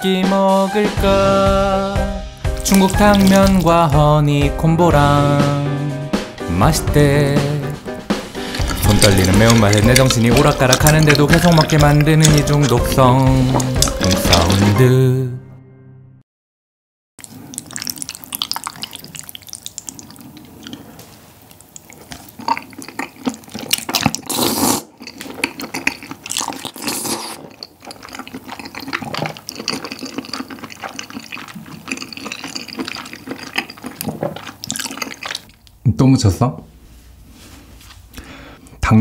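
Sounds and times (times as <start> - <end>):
sticky wet chewing: 2.5 - 4.1, 7.6 - 14.8, 17.2 - 35.8
loud noodle slurps: 2.6 - 3.6, 8.2 - 14.8, 17.2 - 35.6
chopsticks stirring thick sauce: 2.6 - 3.9, 8.1 - 14.8, 17.5 - 35.6.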